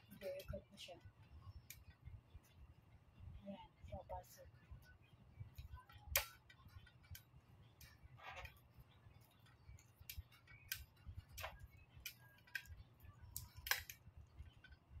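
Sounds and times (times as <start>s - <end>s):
light stand fittings clicking: 9.2s - 12.8s, 13.4s - 14.8s.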